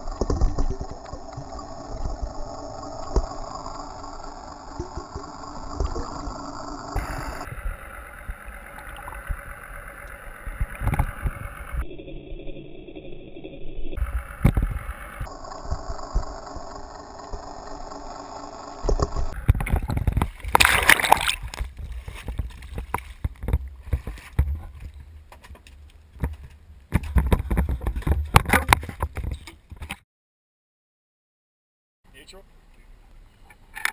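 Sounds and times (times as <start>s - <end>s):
water splashing: 0.0s - 11.8s, 19.3s - 26.4s
underwater gurgling and sloshing: 0.0s - 29.4s.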